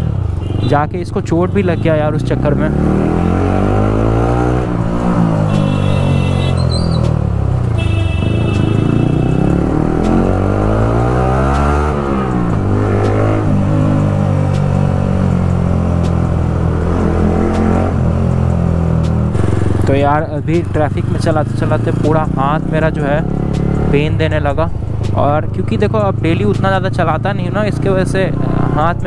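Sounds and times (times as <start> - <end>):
horn honking: 1.4 - 2.3, 5.3 - 11.0
motorcycle engine revving: 1.6 - 29.0.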